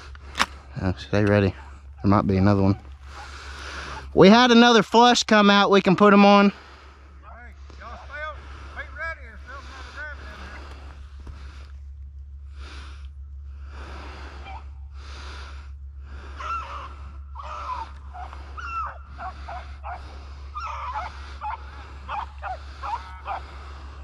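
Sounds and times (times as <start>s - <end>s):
dogs yelping: 1.6s - 4.2s, 14.4s - 14.8s, 16.2s - 24.0s
close breathy noise: 2.9s - 4.2s, 6.4s - 24.0s.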